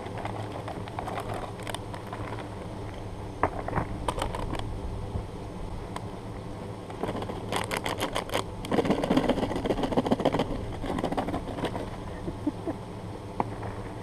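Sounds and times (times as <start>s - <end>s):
laptop crackling and spattering: 0.0s - 2.6s, 3.7s - 4.7s, 6.9s - 12.0s.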